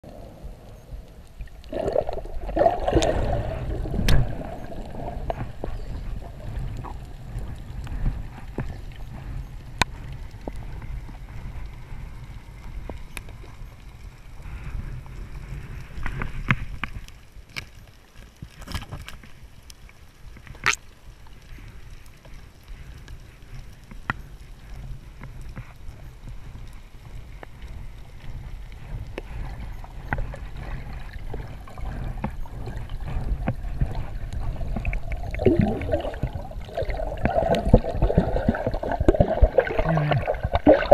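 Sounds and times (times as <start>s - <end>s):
underwater rumble: 0.0s - 40.9s
bubbling and gurgling: 1.3s - 8.8s, 30.0s - 40.9s.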